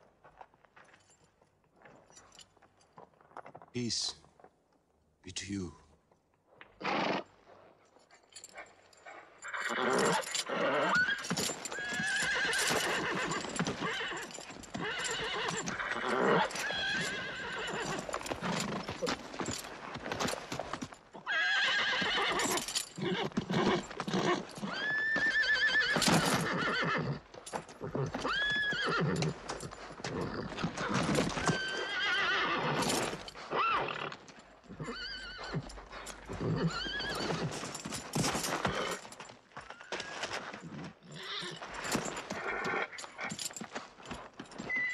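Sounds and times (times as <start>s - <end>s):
horse neighing: 6.8s - 7.3s, 9.4s - 18.3s, 21.2s - 29.4s, 30.1s - 35.7s, 36.3s - 37.6s
hooves stamping: 7.4s - 21.3s, 21.9s - 44.9s.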